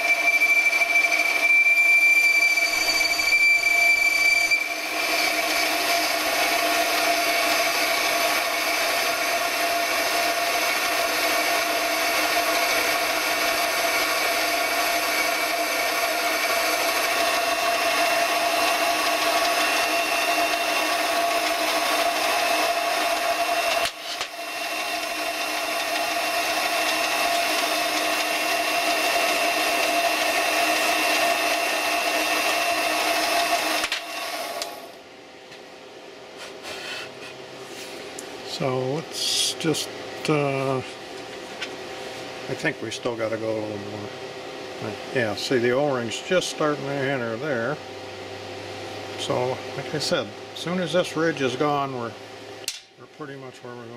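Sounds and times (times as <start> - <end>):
metal lathe whining: 0.0 - 35.0.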